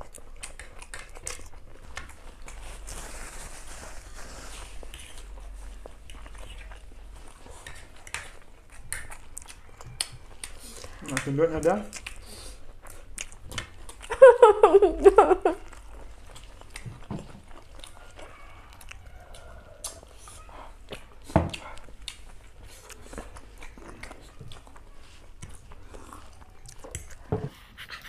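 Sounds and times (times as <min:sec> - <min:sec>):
mouth clicks and smacks: 0:00.0 - 0:02.6, 0:07.6 - 0:14.2
chewing noodles: 0:00.0 - 0:28.0.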